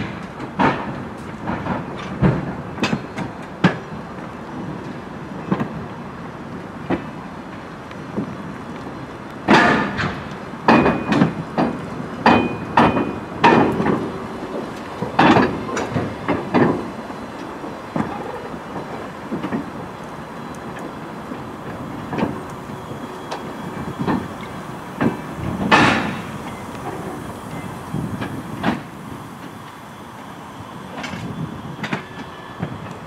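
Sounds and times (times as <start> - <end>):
train cars rolling on track: 0.0 - 33.0
metallic clanks from wheels: 9.4 - 21.0, 21.6 - 29.8.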